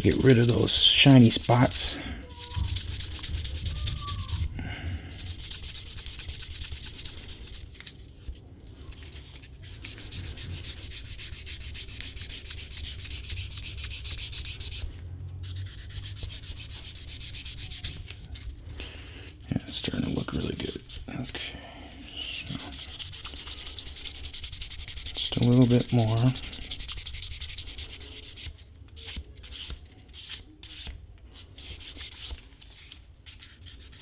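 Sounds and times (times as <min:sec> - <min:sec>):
sandpaper scratching leather edge: 0:00.0 - 0:04.5, 0:05.1 - 0:07.7, 0:09.6 - 0:18.2, 0:22.5 - 0:30.9, 0:33.3 - 0:34.0.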